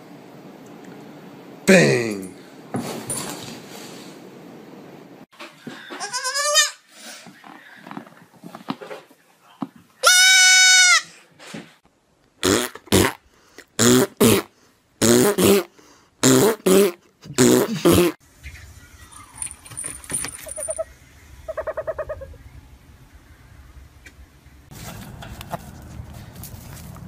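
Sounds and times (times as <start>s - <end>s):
baby goat bleating: 6.0s - 6.8s, 10.0s - 11.0s.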